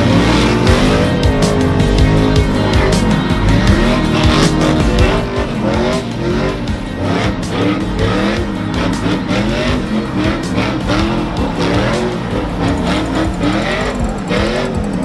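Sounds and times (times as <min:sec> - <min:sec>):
background music with steady beat: 0:00.0 - 0:15.0
tires squealing: 0:00.0 - 0:15.0
truck engines revving: 0:00.0 - 0:15.0.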